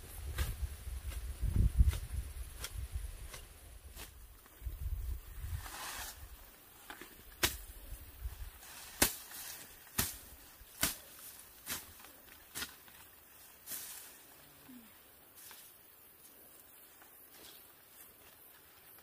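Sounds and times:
vegetation rustling: 0.0 - 19.0
machete slashing grass: 7.4 - 7.7, 8.8 - 12.8.

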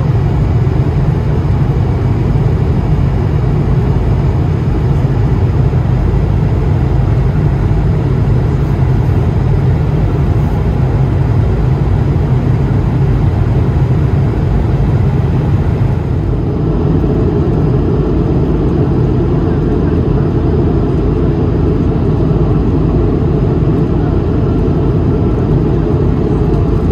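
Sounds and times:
aircraft cabin drone: 0.0 - 26.9.

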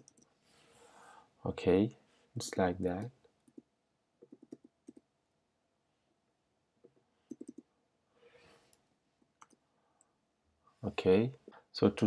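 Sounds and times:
keyboard and mouse clicking: 0.0 - 0.3, 4.2 - 5.1, 6.8 - 7.7, 9.4 - 9.6.

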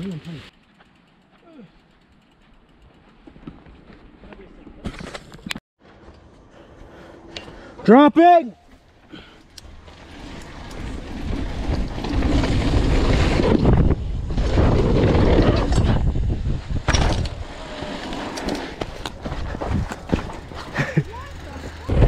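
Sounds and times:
wind rushing over microphone: 10.7 - 17.5.

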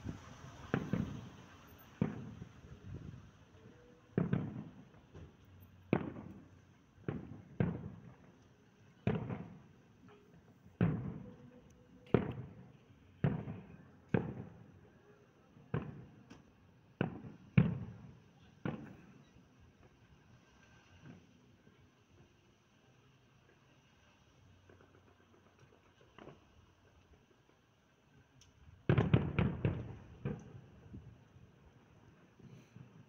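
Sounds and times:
firework shells bursting: 0.0 - 8.4.

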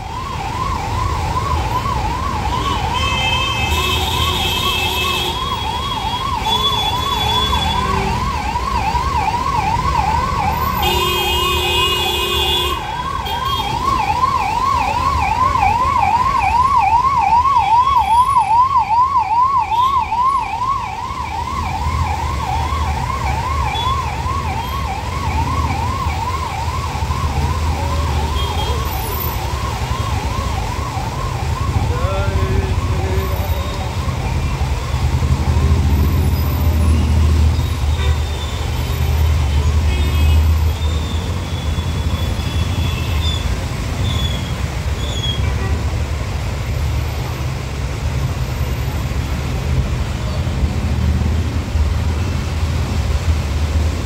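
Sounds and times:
emergency siren yelping: 0.0 - 11.8, 12.7 - 37.0
traffic rumble through floodwater: 0.0 - 54.0
vehicle horns blaring: 2.9 - 8.1, 10.8 - 13.8, 37.9 - 38.7.

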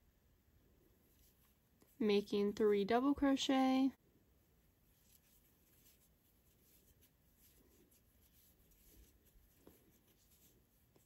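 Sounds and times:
crochet hook scratching yarn: 4.8 - 11.0.

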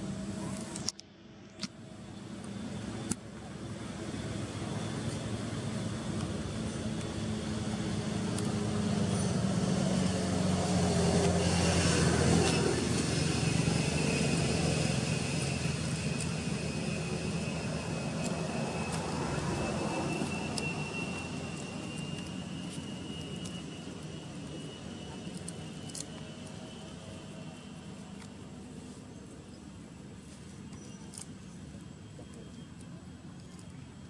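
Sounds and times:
low engine drone: 0.0 - 34.0
thin high whine: 4.2 - 31.1.

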